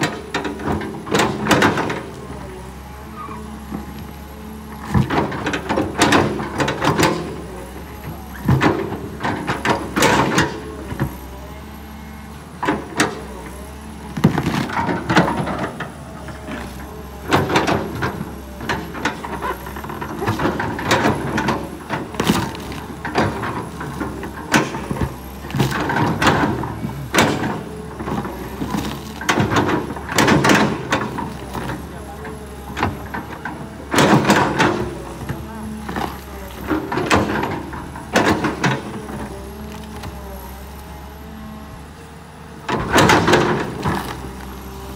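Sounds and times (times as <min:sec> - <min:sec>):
excavator diesel engine running: 0:00.0 - 0:44.9
roots cracking and creaking: 0:13.6 - 0:40.2.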